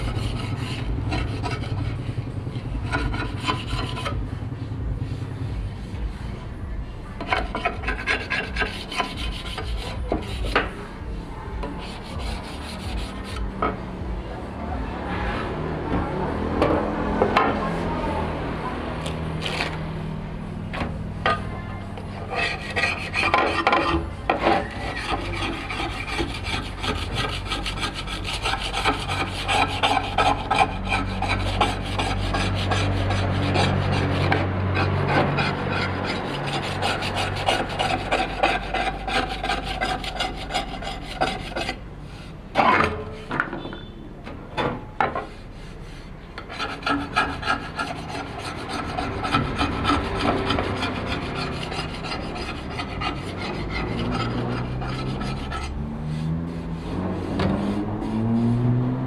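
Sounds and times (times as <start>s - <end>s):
rasping rubbing strokes: 0.0s - 6.4s, 7.2s - 13.8s, 20.8s - 43.3s, 45.1s - 59.0s.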